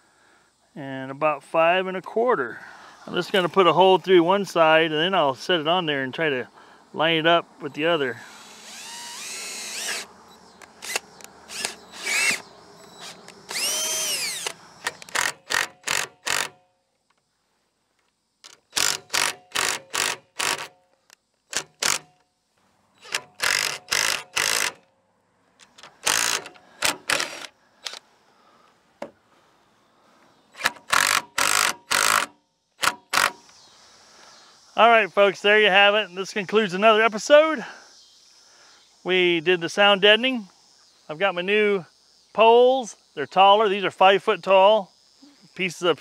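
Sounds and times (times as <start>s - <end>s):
power drill boring plastic pipe: 8.3s - 10.1s, 10.8s - 16.5s, 18.7s - 20.7s, 23.0s - 24.8s, 26.0s - 28.0s, 30.6s - 33.4s.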